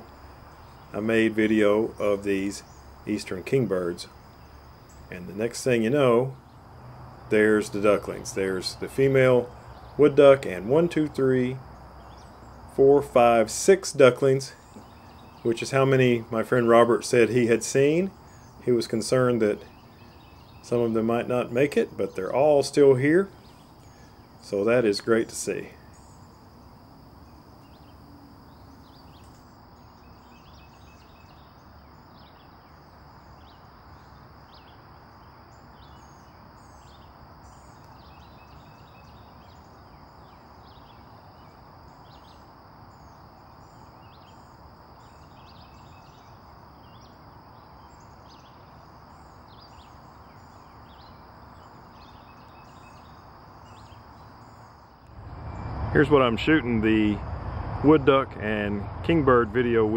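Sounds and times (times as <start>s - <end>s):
high insect drone: 0.0s - 59.9s
bird chirps and calls: 35.6s - 42.4s, 43.1s - 54.6s
faint low rumble: 55.0s - 59.9s.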